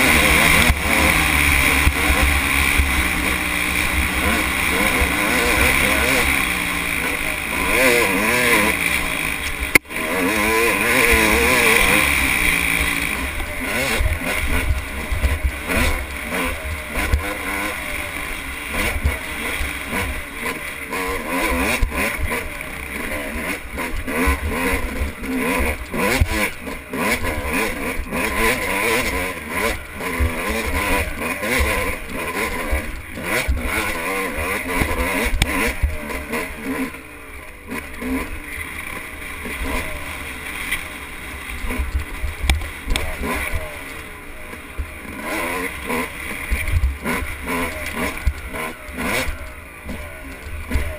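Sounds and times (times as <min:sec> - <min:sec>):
motorcycle engine revving: 0:00.0 - 0:50.9
steady rushing noise: 0:00.0 - 0:50.9.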